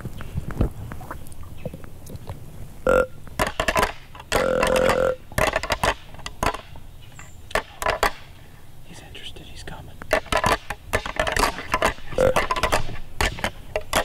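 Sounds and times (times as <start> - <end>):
clicks and rustles: 3.3 - 9.0, 9.6 - 14.0
deer grunts: 12.0 - 12.5.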